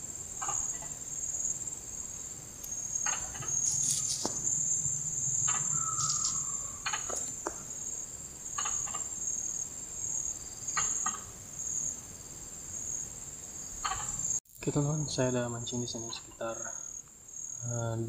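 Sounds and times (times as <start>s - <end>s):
insects trilling: 0.0s - 18.0s
low hum: 2.2s - 8.5s.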